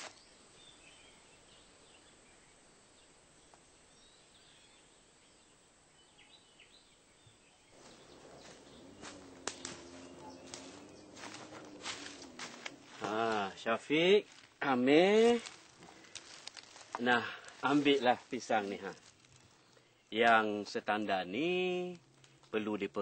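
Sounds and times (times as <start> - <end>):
bird chirps: 6.0 - 13.8
rustling and clicking: 7.8 - 13.5, 15.2 - 20.4.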